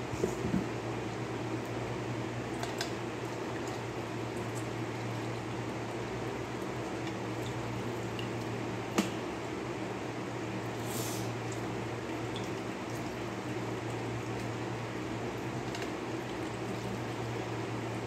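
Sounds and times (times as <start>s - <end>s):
steady low hum: 0.0s - 18.0s
squishing liquid sounds: 1.5s - 9.5s, 10.6s - 18.0s.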